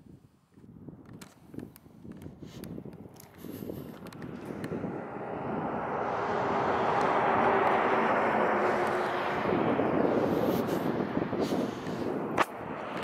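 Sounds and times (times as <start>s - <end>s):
vehicle passing close by: 3.4s - 13.0s.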